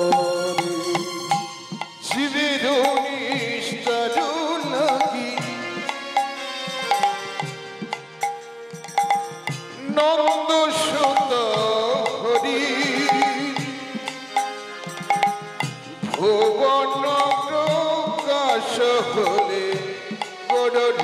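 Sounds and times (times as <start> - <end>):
man singing devotional line: 0.0 - 7.2, 9.6 - 21.0
hand drum: 0.0 - 21.0.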